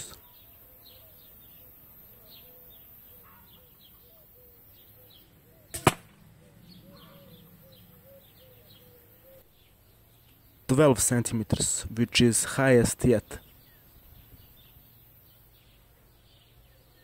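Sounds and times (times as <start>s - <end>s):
arrow hitting target: 5.7s - 6.2s.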